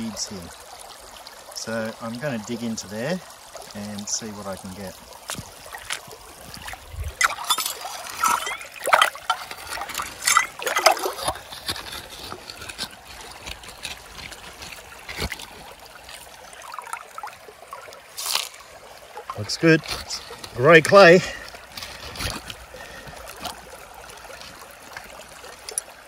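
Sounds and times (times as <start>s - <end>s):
water splashes: 0.0s - 26.0s
water trickling: 0.0s - 26.0s
scoop scraping gravel: 5.3s - 16.3s, 18.2s - 18.6s, 19.4s - 23.5s.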